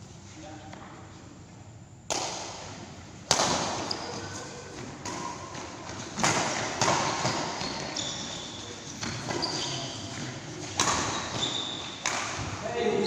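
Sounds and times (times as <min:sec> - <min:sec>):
racket hitting shuttlecock: 0:02.1 - 0:08.0, 0:09.0 - 0:12.6.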